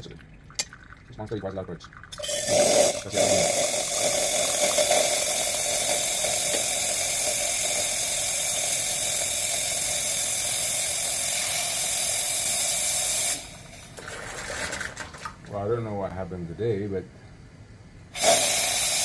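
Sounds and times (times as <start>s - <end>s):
steam wand hissing in milk: 2.2s - 13.7s, 18.2s - 19.0s.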